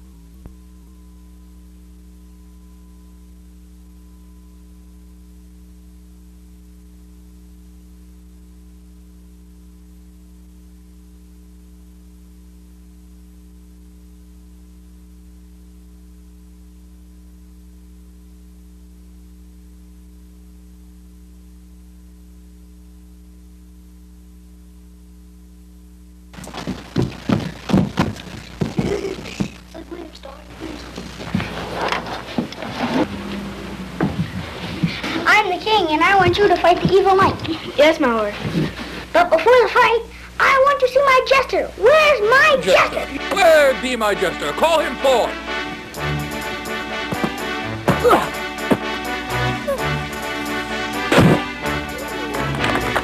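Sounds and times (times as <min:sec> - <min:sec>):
steady low hum with tones: 0:00.0 - 0:53.0
loud knocks and thumps: 0:26.4 - 0:29.6.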